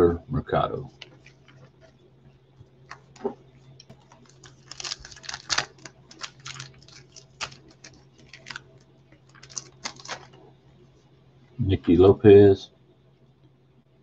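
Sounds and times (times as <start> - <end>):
faint low hum: 0.0 - 14.0
trading cards clicking and rustling: 0.9 - 1.9, 2.8 - 10.4.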